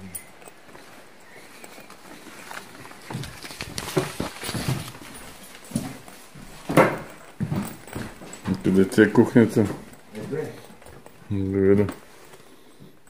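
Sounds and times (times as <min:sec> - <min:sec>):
footsteps on hard floor: 0:00.6 - 0:13.0.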